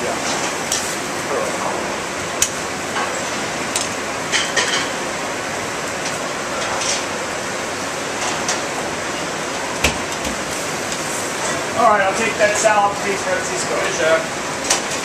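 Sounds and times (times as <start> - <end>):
ventilation hood rushing: 0.0 - 15.0
metal pans and utensils clattering: 4.3 - 5.0, 6.5 - 7.1.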